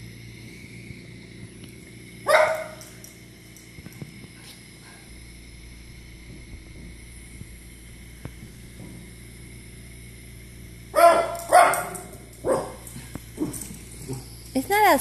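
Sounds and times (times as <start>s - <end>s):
room hum: 0.0s - 15.0s
small dog barking: 2.3s - 2.9s, 11.0s - 12.9s.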